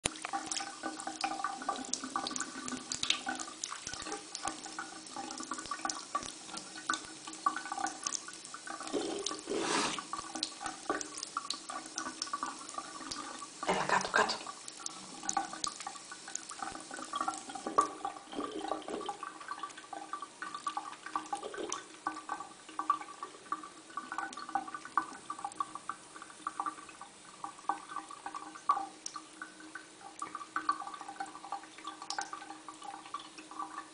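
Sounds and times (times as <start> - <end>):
tap water running into sink: 0.0 - 33.9.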